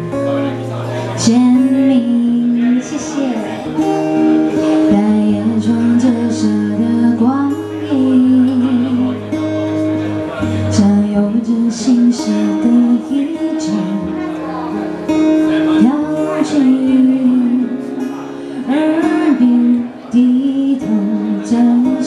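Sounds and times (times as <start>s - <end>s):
acoustic guitar: 0.0s - 22.0s
woman singing pop ballad: 1.2s - 3.4s, 4.9s - 9.2s, 10.6s - 14.1s, 18.6s - 22.0s.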